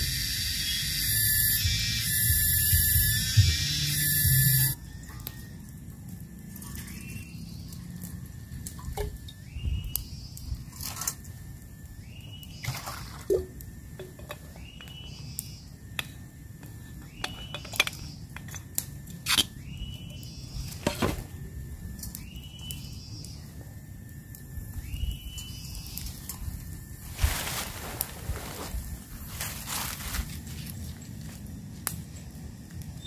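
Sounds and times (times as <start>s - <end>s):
high steady tone stepping up: 0.0s - 4.8s.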